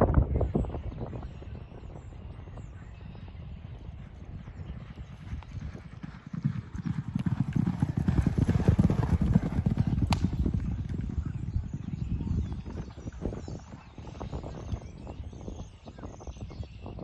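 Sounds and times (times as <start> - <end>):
horses galloping on dirt: 0.9 - 16.8.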